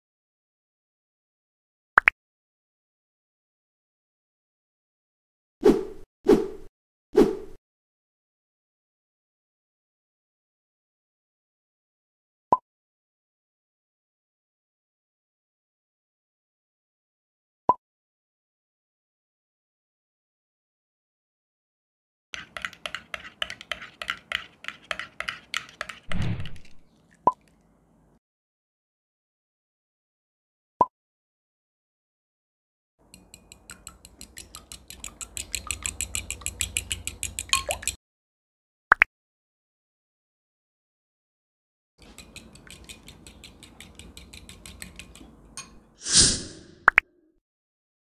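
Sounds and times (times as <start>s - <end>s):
spoon clinking in glass cup: 22.4s - 26.0s, 33.1s - 38.0s, 42.0s - 45.8s
fork beating eggs in glass bowl: 22.4s - 26.8s, 33.0s - 38.0s, 42.0s - 45.8s
brief rush of noise: 46.0s - 46.8s.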